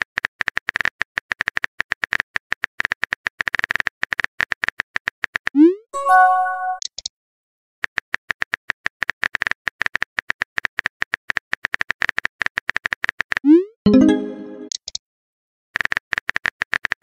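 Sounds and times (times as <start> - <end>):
notification chime: 6.0 - 6.8, 13.9 - 14.7.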